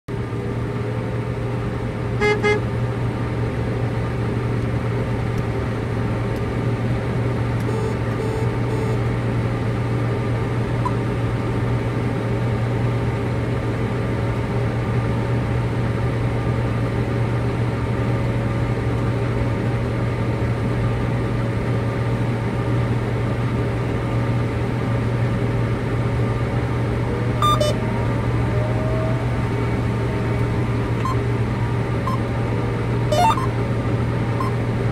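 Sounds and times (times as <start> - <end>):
diesel engine drone: 0.1 - 34.9
short beep: 7.6 - 9.0, 27.4 - 27.8, 31.0 - 31.2, 32.0 - 32.2, 33.1 - 33.6.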